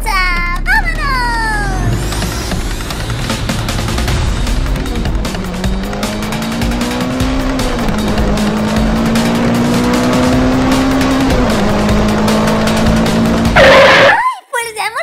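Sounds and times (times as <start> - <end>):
background music with steady beat: 0.0 - 13.7
race car engine revving: 0.8 - 14.1
loud screech: 13.6 - 14.2.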